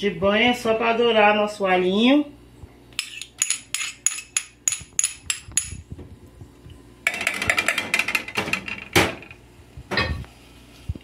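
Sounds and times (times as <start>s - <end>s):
metal spoon tapping pan: 3.0s - 5.8s.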